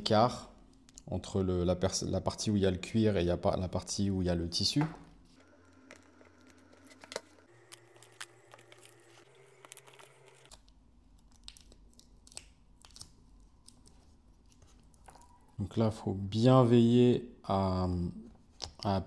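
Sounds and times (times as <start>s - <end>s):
adhesive tape crinkling: 5.6s - 15.3s.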